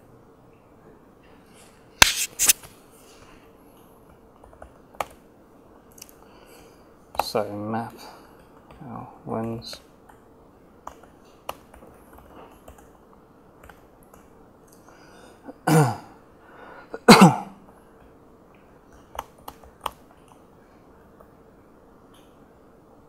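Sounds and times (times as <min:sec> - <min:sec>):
man coughing: 0:15.5 - 0:16.2, 0:17.0 - 0:17.6.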